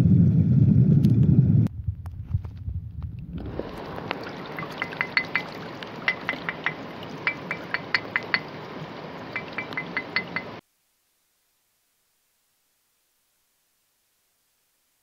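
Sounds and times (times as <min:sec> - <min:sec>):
stream rushing: 0:03.3 - 0:10.6
stone tapped ringing clicks: 0:04.8 - 0:05.5, 0:06.1 - 0:08.5, 0:09.4 - 0:10.6.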